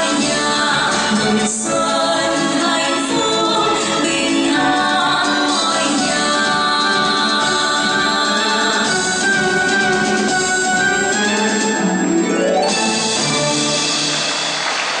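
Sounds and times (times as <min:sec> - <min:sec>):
two women singing a duet: 0:00.0 - 0:11.2.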